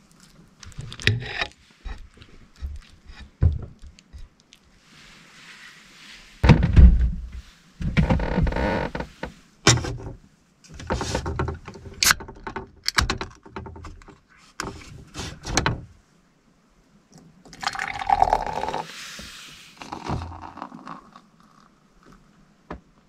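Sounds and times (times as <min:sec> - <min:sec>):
beer pouring and fizzing: 0:17.5 - 0:22.3.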